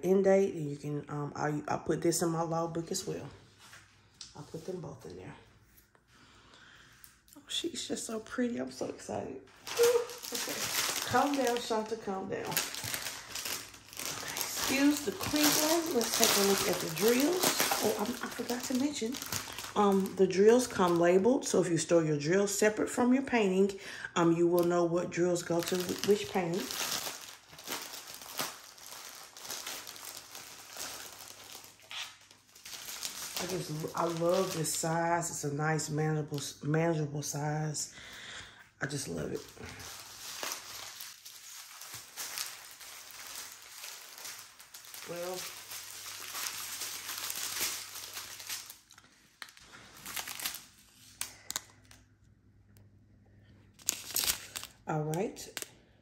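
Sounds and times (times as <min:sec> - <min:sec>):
plastic bag crinkling: 0:09.5 - 0:21.6, 0:24.4 - 0:36.5, 0:38.4 - 0:52.1, 0:53.7 - 0:55.8.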